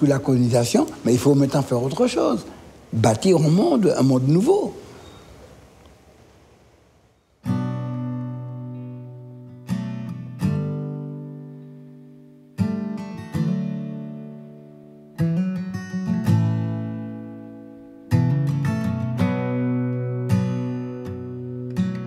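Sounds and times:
acoustic guitar strummed chords: 7.4 - 22.0.

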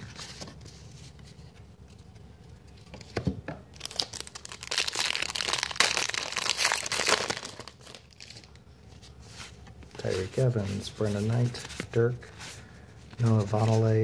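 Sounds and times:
wrapper tearing and crinkling: 3.7 - 8.5.

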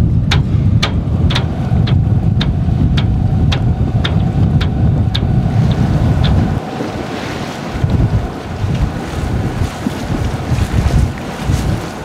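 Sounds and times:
boat engine running: 0.0 - 12.0
wind rumbling on microphone: 0.0 - 12.0
sharp repeating tick: 0.3 - 5.3.

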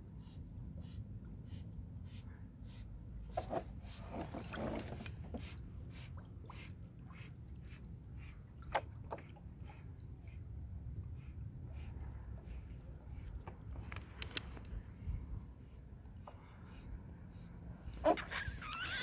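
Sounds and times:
steady low rumble: 4.8 - 18.1.

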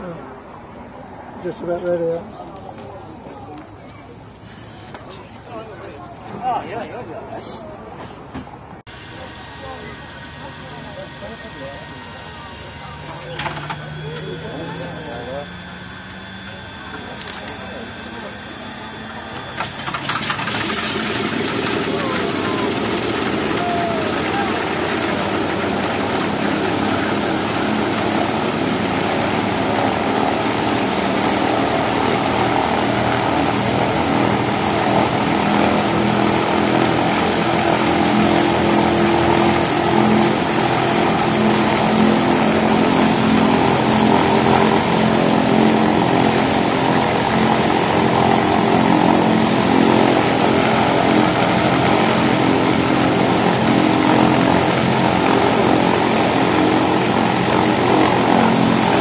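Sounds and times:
aircraft radial engines running: 0.0 - 7.4, 8.0 - 59.0.

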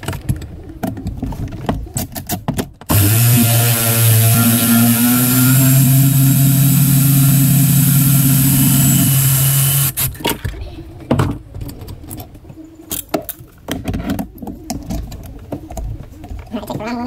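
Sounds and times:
cordless power tool running: 2.9 - 10.2.

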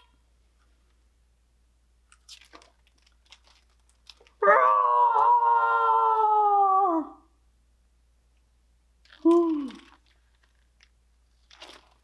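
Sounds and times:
book pages rustling: 2.1 - 4.4, 9.1 - 12.0.

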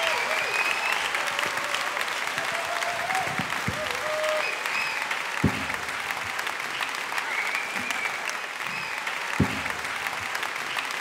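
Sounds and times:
audience applauding: 0.0 - 11.0
loud thumps: 5.4 - 6.3, 9.4 - 10.3.

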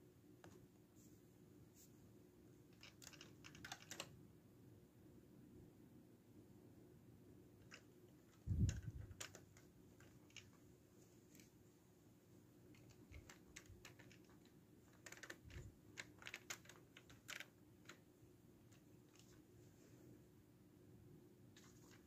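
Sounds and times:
plastic bricks clicking: 2.8 - 4.1, 12.7 - 18.0.

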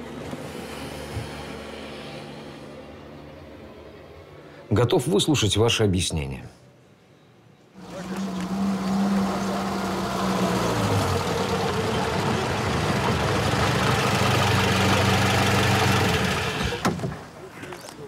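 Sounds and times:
car engine running: 7.8 - 16.8
rough noise of car on dirt: 7.8 - 17.4.

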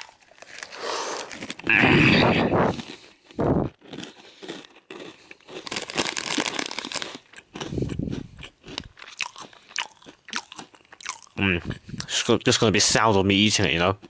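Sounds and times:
snack bag crinkling: 0.0 - 12.2.

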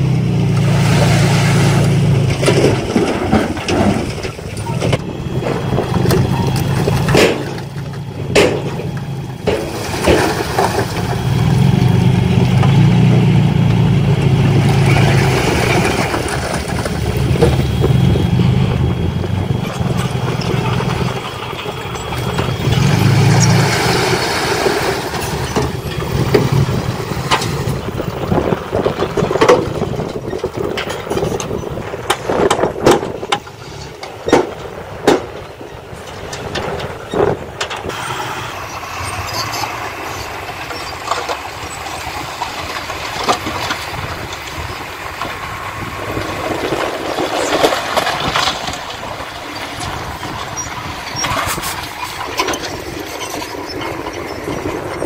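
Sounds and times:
diesel truck engines running: 0.0 - 55.0
sharp knocks and bangs: 2.3 - 11.5, 34.2 - 35.4
dirt and stone tipping: 2.3 - 12.8.

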